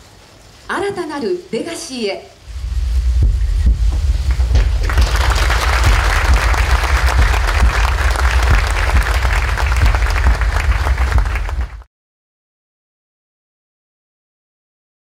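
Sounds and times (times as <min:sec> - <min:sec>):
deep steady rumble: 0:02.4 - 0:11.9
audience applauding: 0:04.3 - 0:11.9.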